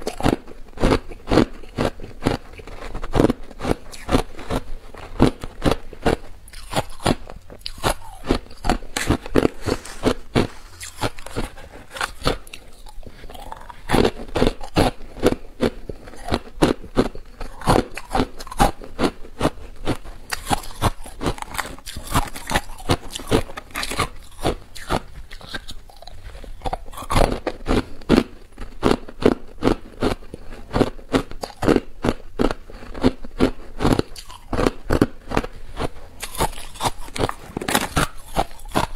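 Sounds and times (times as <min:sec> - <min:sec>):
ice being chewed: 0:00.0 - 0:38.9.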